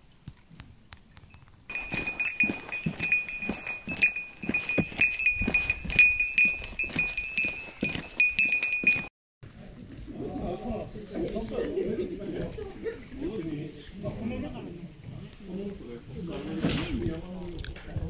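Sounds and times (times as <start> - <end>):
footsteps on wooden boardwalk: 1.7 - 9.1
small bell jingling: 1.7 - 9.1.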